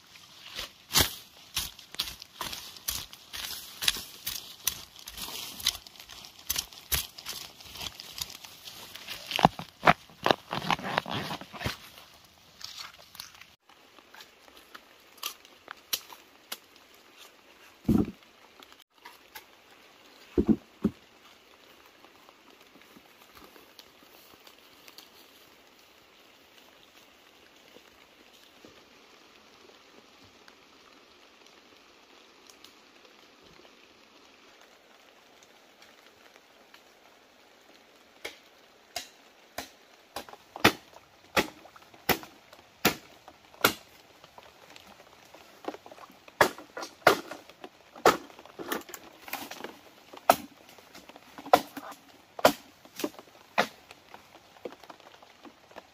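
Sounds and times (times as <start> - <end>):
light ticks and crackles: 0.0 - 10.8, 11.4 - 55.9
footsteps crunching in leaf litter: 0.0 - 13.6
soft steady hiss: 0.0 - 55.9.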